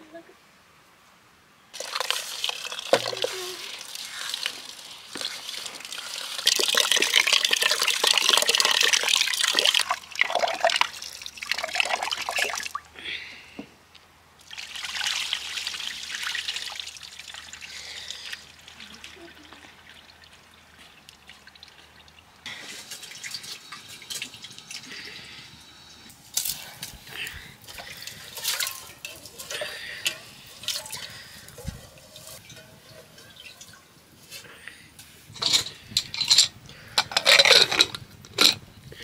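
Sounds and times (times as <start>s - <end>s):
water trickling and pouring: 1.8s - 12.9s, 14.4s - 26.7s, 27.6s - 34.2s.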